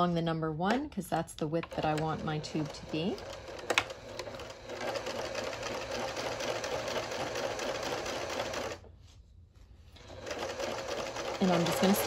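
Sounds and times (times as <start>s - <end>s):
sewing machine stitching fast: 1.7s - 8.8s, 10.0s - 12.0s.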